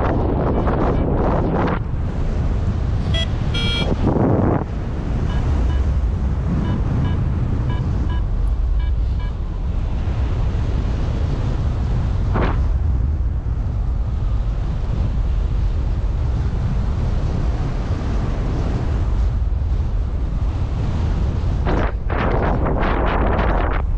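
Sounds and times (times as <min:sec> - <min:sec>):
wind buffeting microphone: 0:00.0 - 0:23.9
short beeps in pairs: 0:03.0 - 0:04.0, 0:05.2 - 0:05.9, 0:06.6 - 0:09.4.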